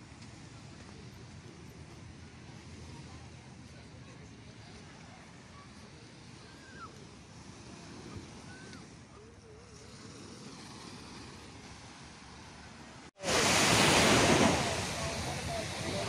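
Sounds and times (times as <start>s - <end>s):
surf washing onto beach: 0.0s - 16.0s.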